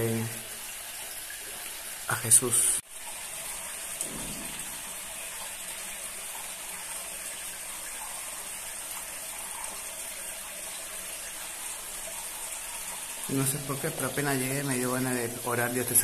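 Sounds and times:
spring water running over rocks: 0.0 - 16.0
water splashing into pool: 3.5 - 7.0.

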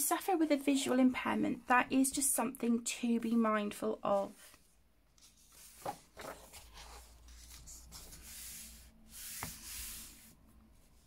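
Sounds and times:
paper pages rustling: 4.4 - 10.3.

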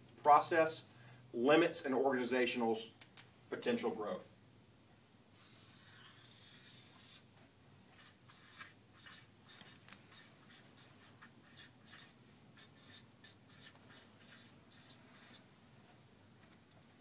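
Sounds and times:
pen scratching on paper: 5.4 - 7.3, 8.0 - 15.5.

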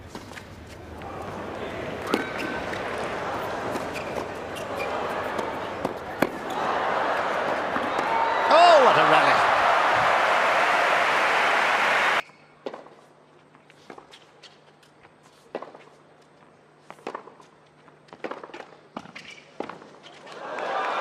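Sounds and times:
crowd noise: 0.9 - 12.2
tennis racket striking ball: 2.0 - 3.0
crowd applauding: 6.4 - 12.2, 20.4 - 21.0.

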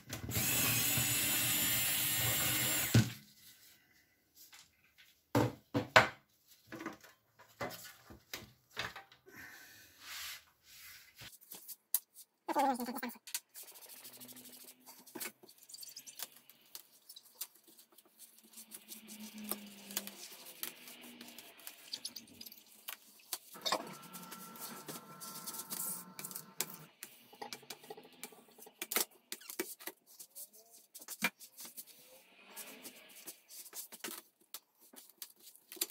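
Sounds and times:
drawn-out squeak: 23.6 - 26.1.

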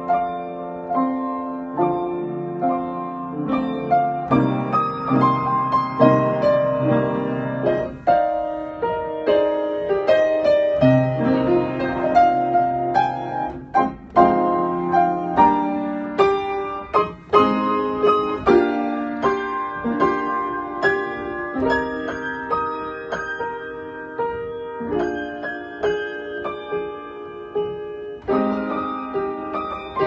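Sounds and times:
digital piano playing: 0.0 - 30.0.

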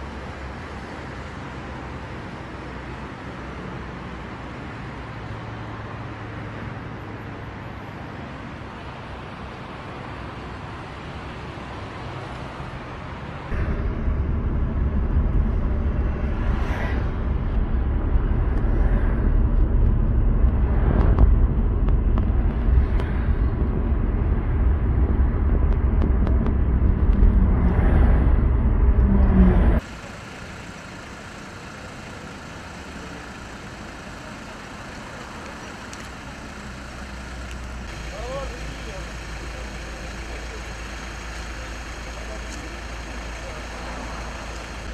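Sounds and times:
road traffic hiss and hum: 0.0 - 44.9
vehicles swishing past: 3.6 - 25.6, 26.6 - 44.9
car driving rumble from inside: 13.4 - 44.9.

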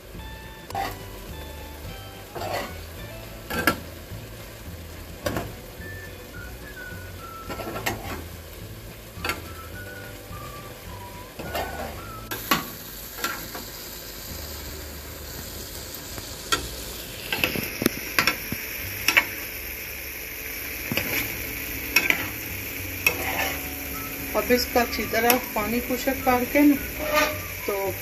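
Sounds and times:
fish sizzling: 0.0 - 28.0
spoon scraping frying pan: 2.2 - 3.9, 7.5 - 8.3, 11.4 - 13.5, 16.5 - 19.4, 20.8 - 27.9.

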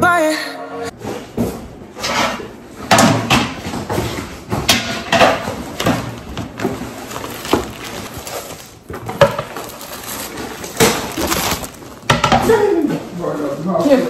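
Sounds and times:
plastic packaging crinkling: 5.4 - 12.6.

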